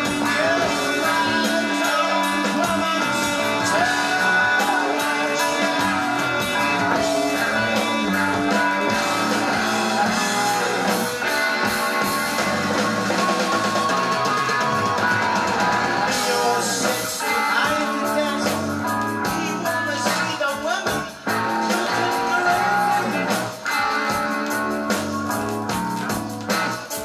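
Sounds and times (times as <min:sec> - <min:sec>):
electric guitar bending notes: 0:00.0 - 0:20.0
drums: 0:00.0 - 0:27.0.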